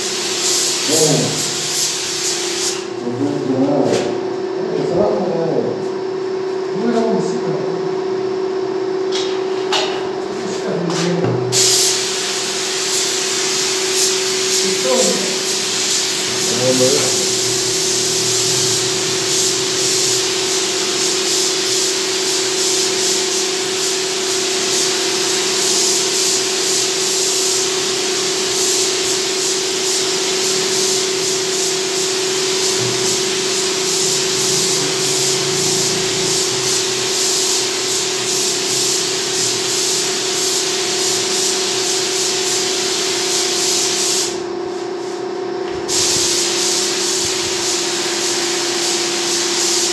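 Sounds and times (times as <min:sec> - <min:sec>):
air spray gun hissing: 0:00.0 - 0:03.0, 0:11.5 - 0:49.9.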